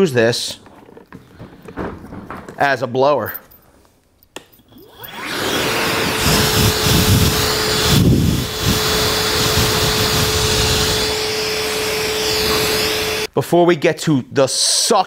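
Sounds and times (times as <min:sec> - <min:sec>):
motor whine: 0:04.7 - 0:13.3
vacuum blower air rush: 0:04.8 - 0:13.3
wind rumble on microphone: 0:06.1 - 0:11.1.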